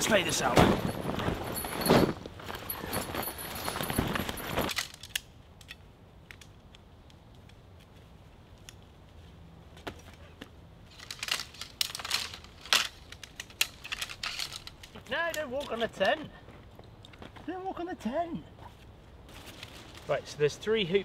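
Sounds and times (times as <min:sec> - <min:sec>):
canvas tent rustling on leaves: 0:00.0 - 0:04.8, 0:19.3 - 0:20.4.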